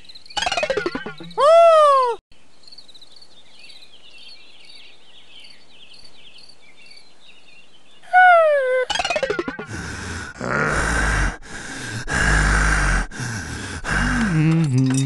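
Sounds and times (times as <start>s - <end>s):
cartoon voice exclamation: 1.4s - 2.2s, 8.1s - 8.9s
insect chirping: 2.6s - 4.8s.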